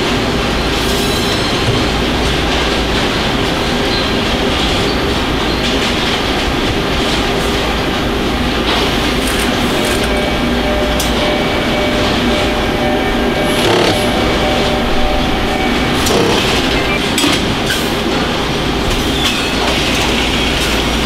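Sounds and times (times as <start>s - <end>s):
assembly line machinery din: 13.0s - 17.1s.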